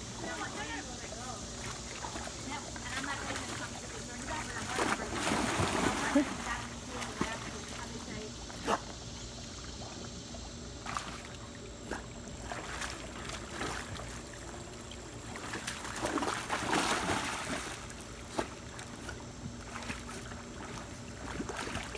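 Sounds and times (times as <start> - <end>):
pool water lapping and splashing: 0.0 - 21.9
dog splashing into water: 4.4 - 7.9, 12.0 - 14.3, 15.3 - 21.9.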